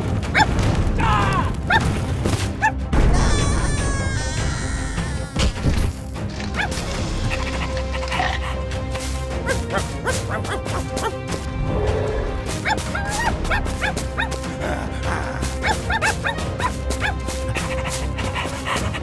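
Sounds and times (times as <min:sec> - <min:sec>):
background music: 0:00.0 - 0:19.0.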